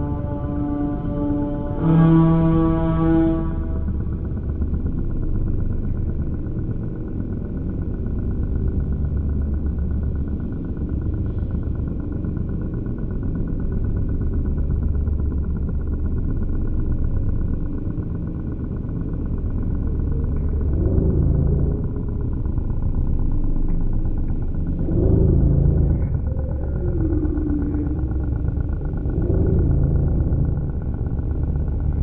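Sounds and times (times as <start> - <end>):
deep fluttering bass drone: 0.0 - 32.0.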